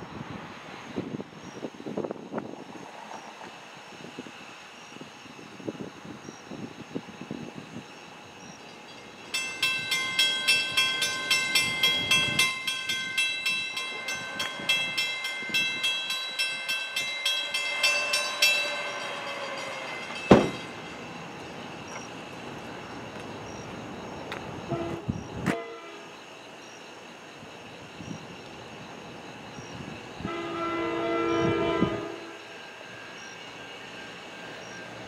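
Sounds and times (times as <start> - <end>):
railroad crossing bell ringing: 8.6 - 23.8
sharp bang: 19.5 - 21.0.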